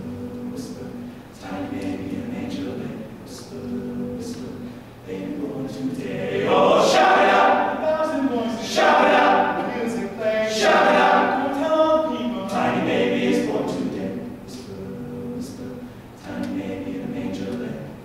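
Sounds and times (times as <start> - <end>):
male a cappella ensemble singing: 0.0 - 18.0.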